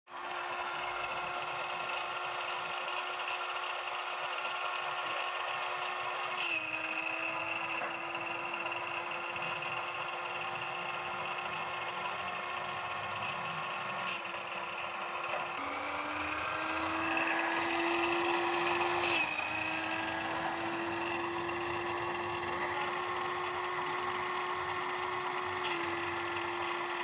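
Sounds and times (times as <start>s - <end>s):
cut-off saw motor whining: 0.1s - 27.0s.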